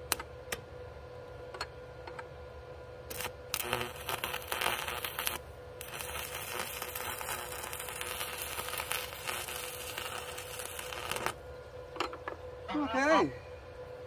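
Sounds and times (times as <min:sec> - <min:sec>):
welding arc crackling: 0:03.1 - 0:11.5.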